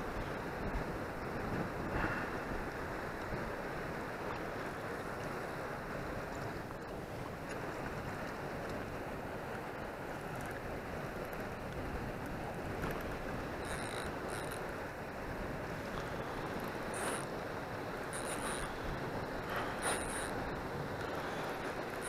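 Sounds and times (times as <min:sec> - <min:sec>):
wind noise on microphone: 0:00.0 - 0:04.4.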